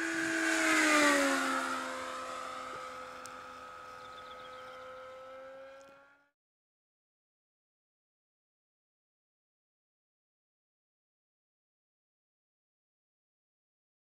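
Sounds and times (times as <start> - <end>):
model plane motor flyby: 0.0 - 6.4.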